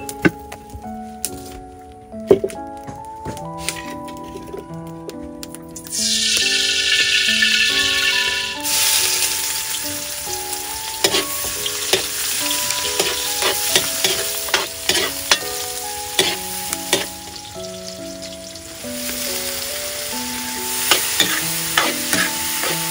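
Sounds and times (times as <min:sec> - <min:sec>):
onions sizzling in hot oil: 0:05.9 - 0:22.9
metal spatula scraping a wok: 0:11.0 - 0:12.1, 0:12.9 - 0:15.5, 0:16.2 - 0:17.1, 0:20.9 - 0:22.9.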